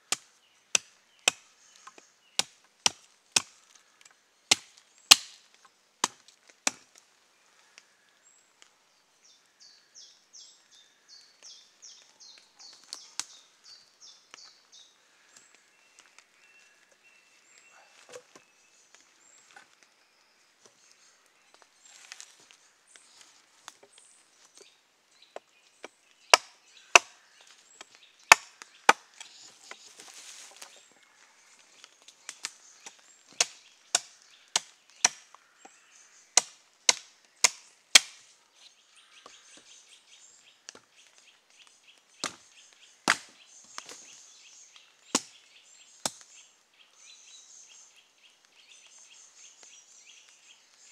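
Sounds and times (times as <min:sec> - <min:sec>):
hatchet chopping log: 0:00.1 - 0:01.4, 0:02.4 - 0:03.5, 0:04.5 - 0:05.4, 0:06.0 - 0:06.9, 0:26.3 - 0:27.2, 0:28.3 - 0:29.1, 0:33.3 - 0:35.3, 0:36.4 - 0:38.2, 0:42.2 - 0:42.4, 0:43.0 - 0:43.4.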